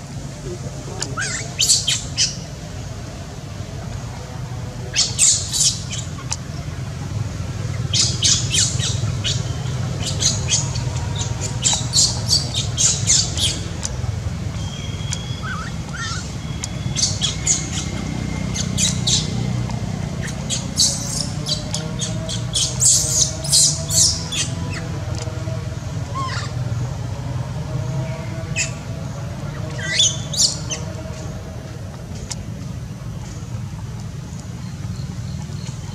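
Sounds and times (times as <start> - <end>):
high-pitched squawking calls: 0.5 - 2.4, 14.6 - 19.5, 26.1 - 26.6.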